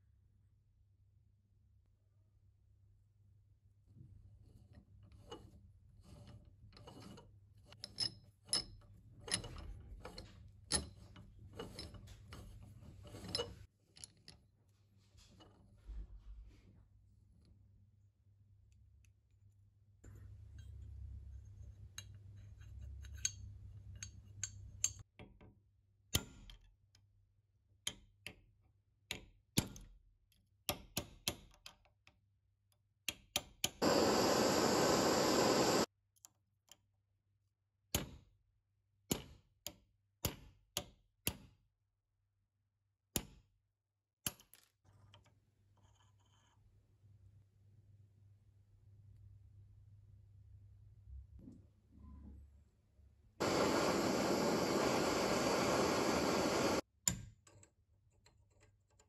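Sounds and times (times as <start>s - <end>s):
metal clicks and taps: 22.0s - 25.0s
gas torch hissing: 33.8s - 35.9s, 53.4s - 56.8s.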